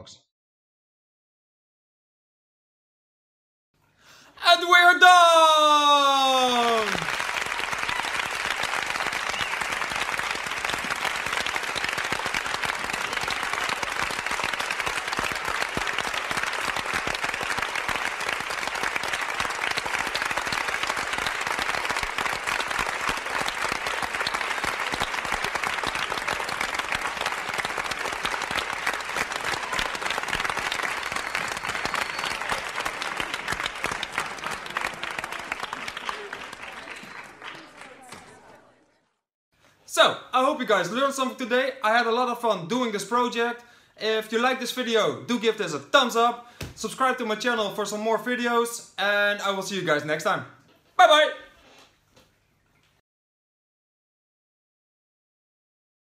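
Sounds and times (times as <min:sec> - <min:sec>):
crowd applause: 0:04.4 - 0:39.0.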